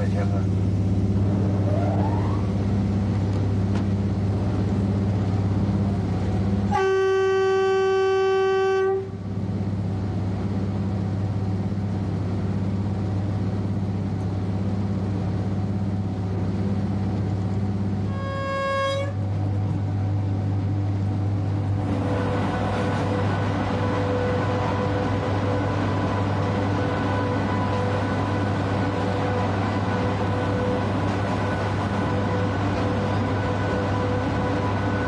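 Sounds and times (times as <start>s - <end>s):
locomotive engine humming: 0.0s - 35.0s
locomotive horn blast: 6.7s - 9.2s, 18.1s - 19.2s.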